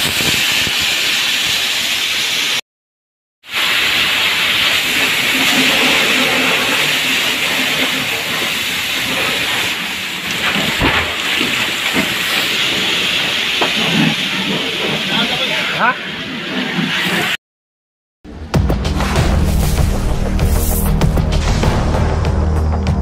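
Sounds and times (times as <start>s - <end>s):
fire hose water jet hissing: 0.0s - 2.6s, 3.5s - 17.4s.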